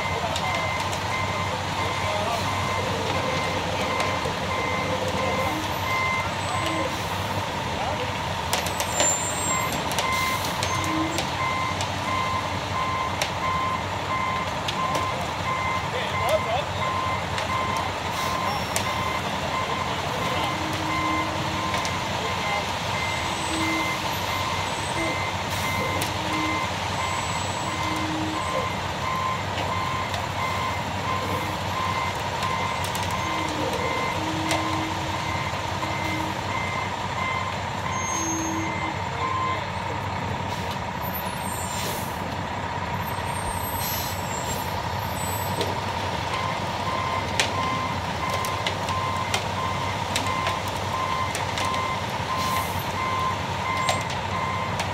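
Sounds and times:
truck engine running: 0.0 - 54.9
backup alarm beeping: 9.4 - 39.7, 46.3 - 54.8.

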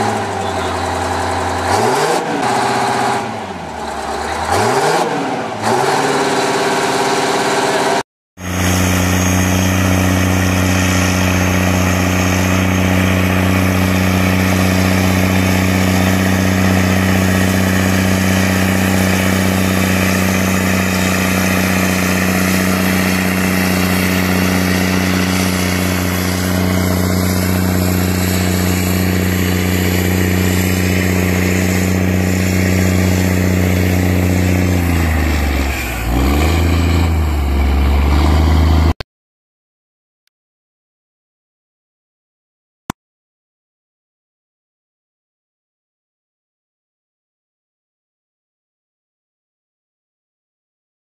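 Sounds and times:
diesel tractor engine running: 0.0 - 39.0.

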